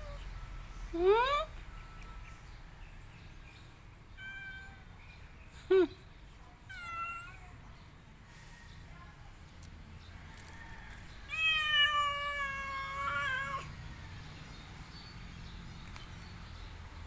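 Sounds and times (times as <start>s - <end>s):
cat meowing: 4.2s - 4.8s, 6.7s - 7.5s, 11.3s - 13.7s.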